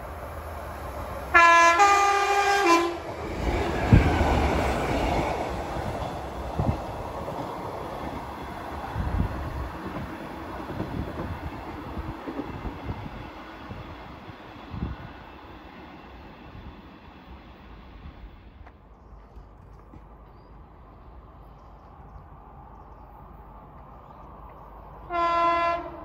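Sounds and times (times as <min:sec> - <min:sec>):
train rumbling past: 0:00.0 - 0:26.0
two-tone train horn: 0:01.3 - 0:03.1, 0:25.0 - 0:26.0.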